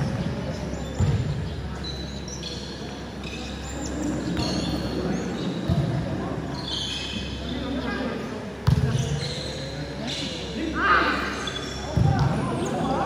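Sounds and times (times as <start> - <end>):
volleyball struck with dull thud: 8.6 - 9.0
shoes squeaking on floor: 8.8 - 10.5.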